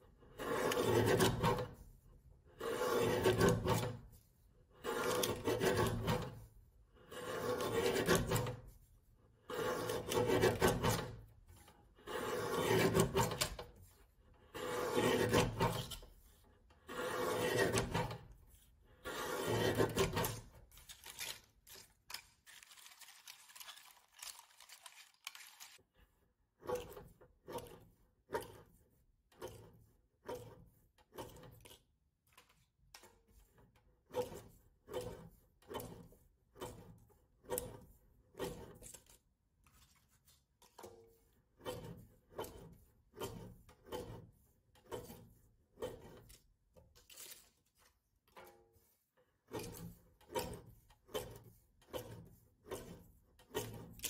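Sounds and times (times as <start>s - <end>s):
paper cutter chopping: 0.4s - 1.8s, 2.6s - 4.0s, 4.8s - 6.4s, 7.1s - 8.6s, 9.5s - 11.2s, 12.0s - 13.8s, 14.6s - 16.2s, 16.8s - 18.4s, 19.1s - 22.2s, 49.6s - 54.0s
paper rustling: 20.3s - 25.8s, 47.0s - 48.0s.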